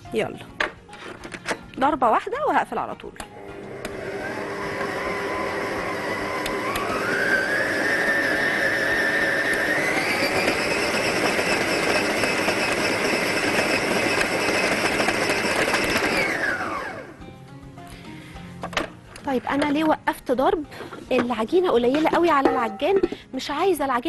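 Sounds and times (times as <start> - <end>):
stand mixer motor whining: 3.5 - 17.1.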